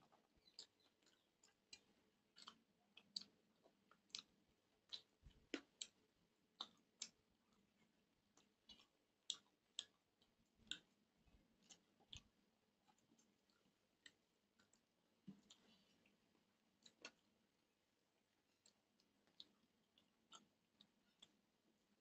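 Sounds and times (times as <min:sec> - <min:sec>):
person chewing with wet clicks: 0:00.0 - 0:22.0.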